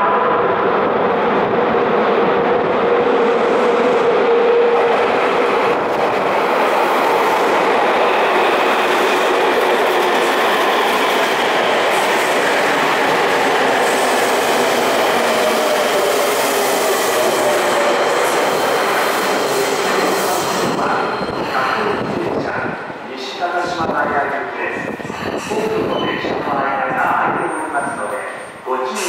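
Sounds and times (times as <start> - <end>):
train wheels rolling and clattering: 1.9 - 22.8.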